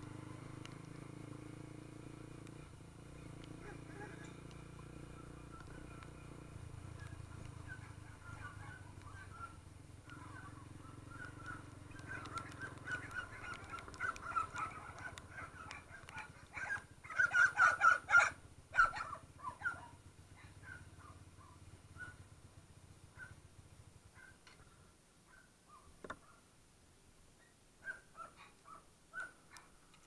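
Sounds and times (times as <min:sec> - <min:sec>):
birds chirping and squawking: 0:03.1 - 0:18.0.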